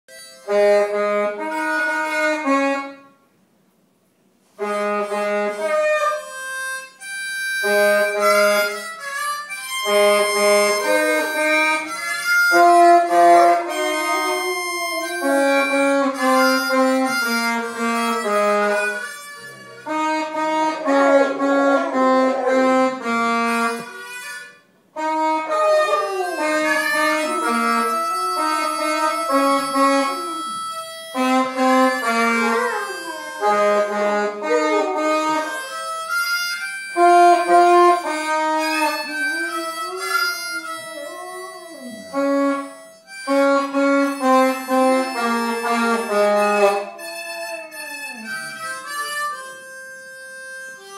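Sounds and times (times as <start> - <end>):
harmonica playing held notes: 0.1 - 3.2, 4.5 - 50.9
dog howling: 10.3 - 17.6, 19.4 - 23.1, 25.4 - 31.0, 31.8 - 36.3, 37.3 - 42.7, 45.1 - 49.2.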